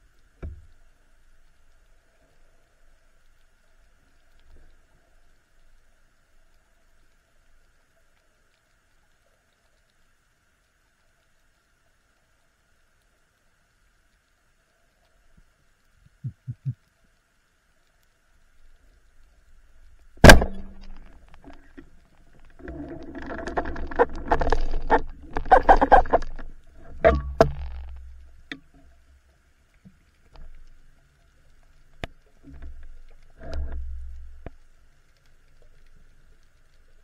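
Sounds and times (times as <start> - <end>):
speargun firing underwater: 20.2 - 21.1
sharp clicks and light knocks: 20.2 - 29.0.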